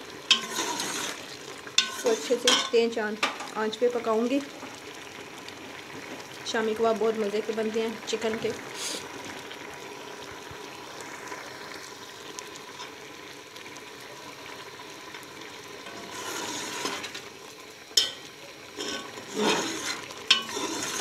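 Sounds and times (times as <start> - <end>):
water boiling off with hiss: 0.0 - 21.0
metal ladle knocking pot: 18.0 - 18.2.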